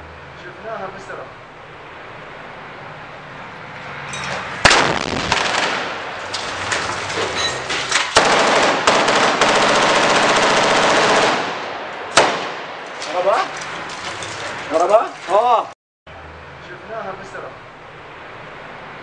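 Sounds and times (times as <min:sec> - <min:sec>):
automatic gunfire: 0:04.6 - 0:06.0, 0:08.2 - 0:12.6
grenade launcher blast: 0:04.6 - 0:06.2, 0:08.1 - 0:12.8
gunshots: 0:04.6 - 0:06.6, 0:08.0 - 0:13.2.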